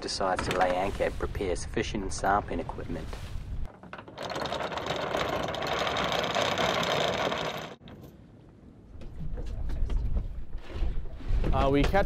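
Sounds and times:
mechanical rattling: 0:03.7 - 0:07.8.

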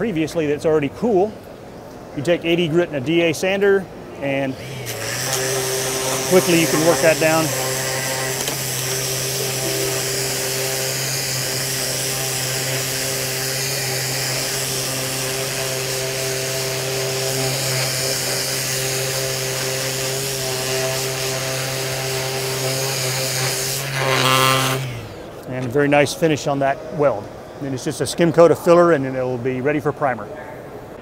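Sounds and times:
sander sanding plastic: 0:04.6 - 0:25.2.

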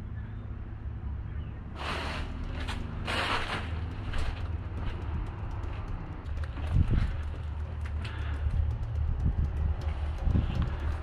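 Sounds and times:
wind rumble on microphone: 0:02.5 - 0:11.0.

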